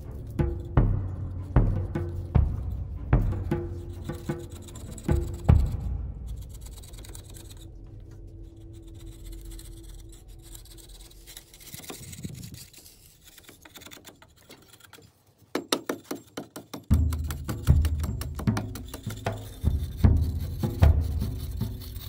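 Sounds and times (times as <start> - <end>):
hand tools scraping and chipping: 0.0 - 22.0
blade knocking on surface: 15.5 - 21.5.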